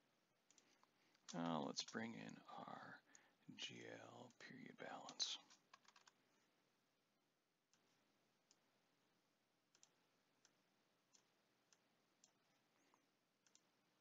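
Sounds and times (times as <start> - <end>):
computer mouse clicks: 0.4 - 2.1, 4.2 - 6.2, 9.7 - 13.7.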